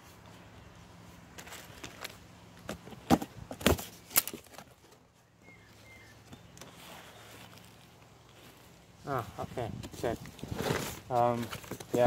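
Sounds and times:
cardboard and packing crackles: 9.9 - 12.0.

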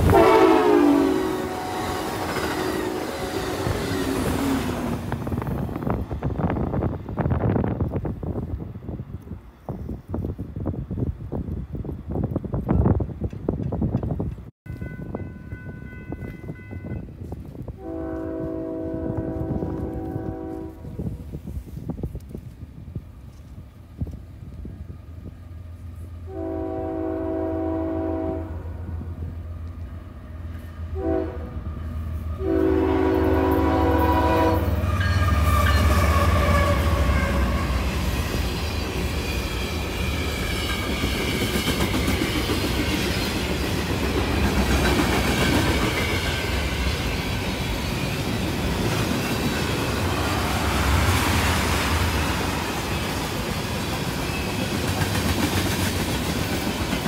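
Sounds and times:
locomotive chime horn blasts: 0.0 - 3.7, 17.8 - 21.0, 26.3 - 28.7, 30.9 - 31.6, 32.4 - 37.8
freight train wheels rumbling: 0.0 - 57.0.

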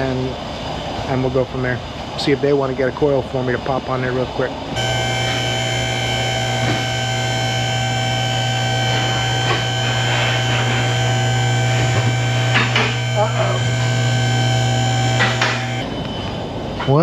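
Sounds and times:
hydraulic pump motor humming: 4.8 - 15.9.

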